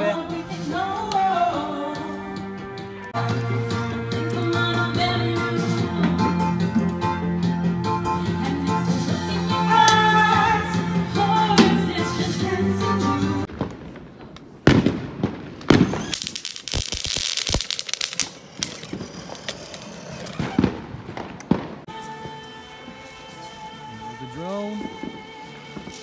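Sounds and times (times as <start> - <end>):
background music with singing: 0.0 - 13.5, 21.9 - 26.0
firecracker pops: 13.5 - 21.9
fireworks bangs: 13.5 - 22.4.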